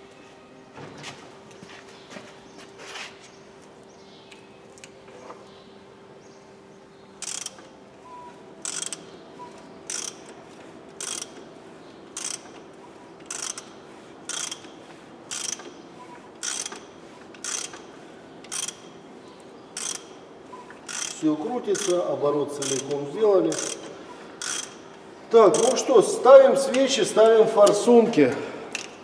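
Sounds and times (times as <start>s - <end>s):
ratchet wrench clicks: 7.2s - 7.7s, 8.6s - 9.1s, 9.9s - 10.4s, 11.0s - 11.4s, 12.2s - 12.6s, 13.2s - 13.7s, 14.3s - 15.7s, 16.4s - 18.9s, 19.8s - 20.2s, 20.8s - 22.0s, 22.6s - 24.8s, 25.5s - 25.9s, 28.7s - 29.0s.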